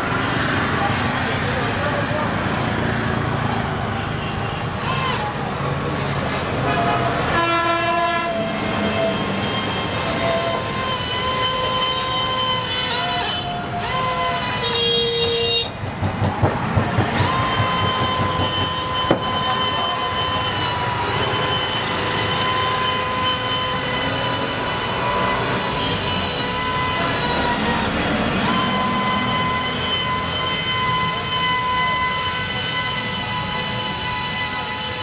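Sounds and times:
toy helicopter motor whine: 4.8s - 5.4s, 8.3s - 14.8s, 17.1s - 35.0s.

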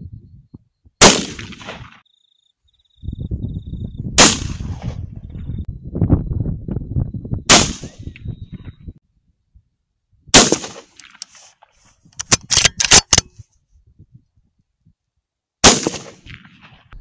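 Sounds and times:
rifle shots echoing: 1.0s - 2.0s, 4.2s - 4.9s, 7.5s - 8.0s, 10.3s - 11.0s, 15.6s - 16.8s.

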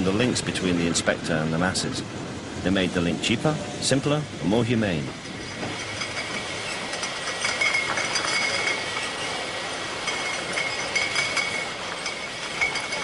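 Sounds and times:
machinery running with high whine: 0.0s - 13.0s
glass bottles clinking: 5.1s - 13.0s.

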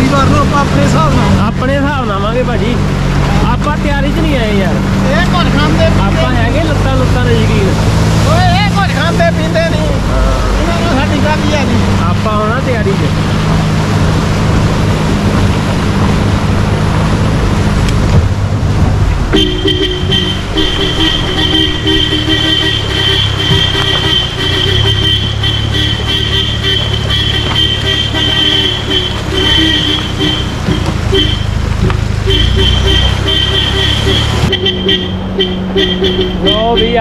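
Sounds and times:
road noise: 0.0s - 37.0s
vehicle engine: 0.0s - 37.0s
car horn sounding: 19.3s - 37.0s.

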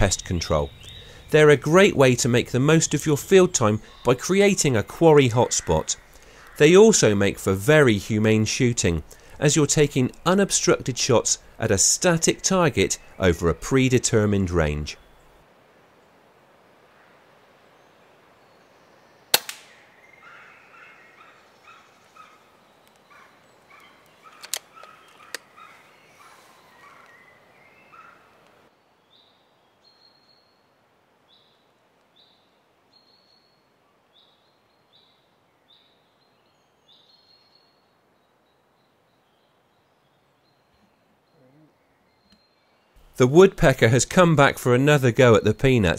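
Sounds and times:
birds chirping: 0.0s - 15.4s, 17.7s - 30.7s, 31.3s - 45.9s
air rifle shot: 19.3s - 19.8s
sharp clicks: 19.4s - 19.7s, 23.8s - 25.5s.

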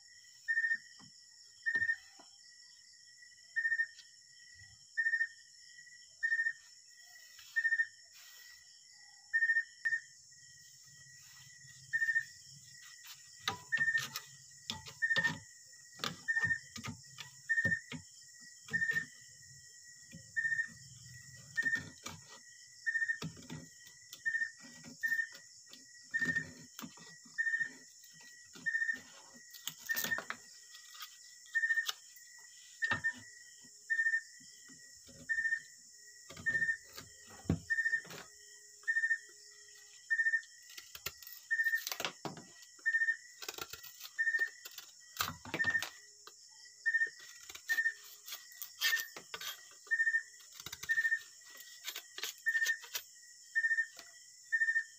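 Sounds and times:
hand tools working bamboo: 10.8s - 33.2s, 40.6s - 42.6s, 43.3s - 46.0s, 47.0s - 53.1s.

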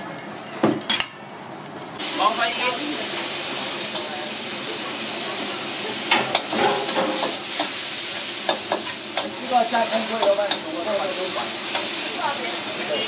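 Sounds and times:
onions sizzling in a wok: 2.0s - 13.0s
spatula clanking against wok: 6.1s - 9.4s, 10.1s - 10.7s.

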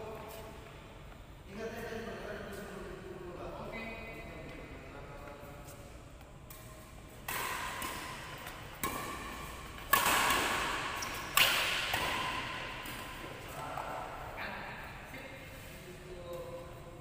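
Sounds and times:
racket hitting shuttlecock: 6.5s - 14.3s.

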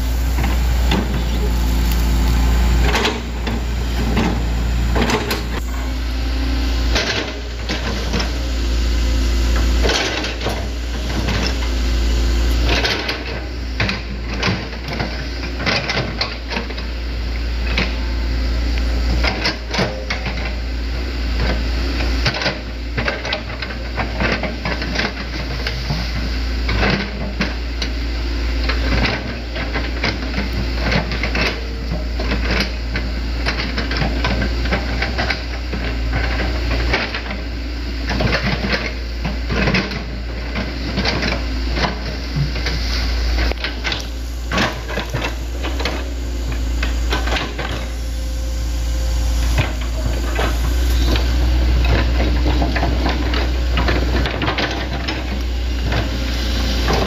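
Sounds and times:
diesel engine rumbling: 0.0s - 57.0s
excavator bucket clattering: 2.8s - 6.0s, 49.5s - 57.0s.

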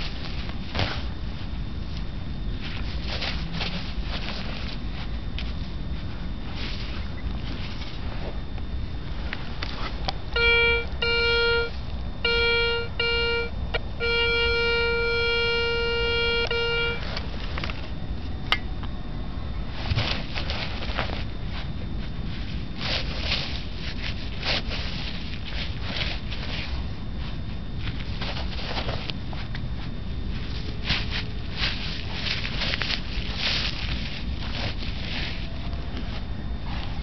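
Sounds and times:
rustling in grass and soil: 0.0s - 10.2s, 19.5s - 37.0s
metal detector beeps: 10.3s - 17.1s
metal detector steady tone: 10.3s - 17.3s.

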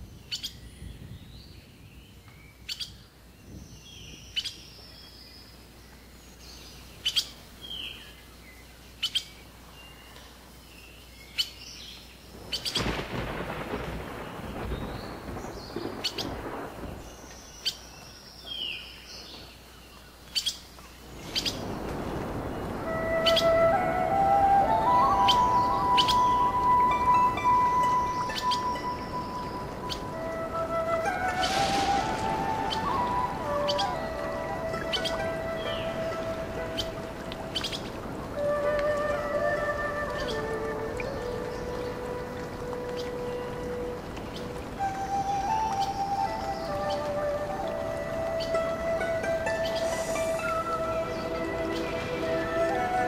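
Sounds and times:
rumbling like distant thunder: 12.3s - 17.6s, 21.0s - 53.0s
birds chirping and calling: 20.2s - 38.0s
music: 22.8s - 53.0s.

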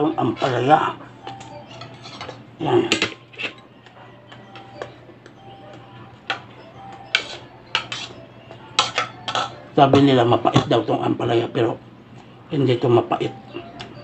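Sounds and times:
utensil scraping plate: 1.7s - 3.7s, 7.1s - 8.2s.

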